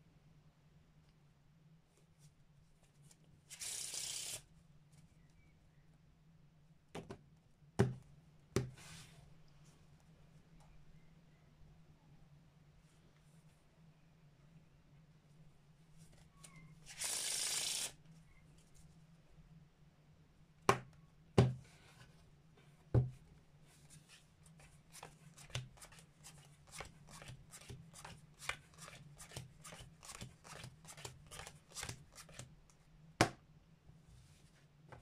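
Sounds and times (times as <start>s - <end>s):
cards being dealt: 25.0s - 32.4s.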